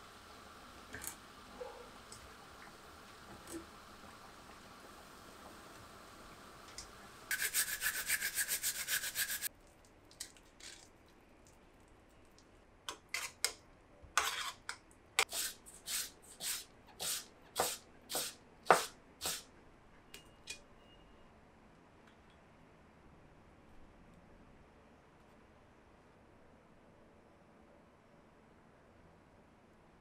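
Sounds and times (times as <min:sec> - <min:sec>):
utensil scraping a saucepan: 0:07.3 - 0:09.5, 0:14.2 - 0:14.7.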